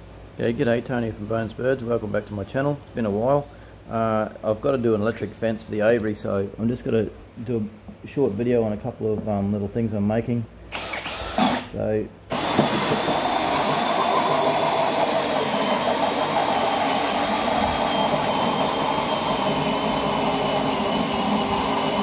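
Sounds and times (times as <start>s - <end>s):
drill cutting through plastic: 10.7s - 11.7s, 12.3s - 22.0s
thin high whine: 13.8s - 22.0s.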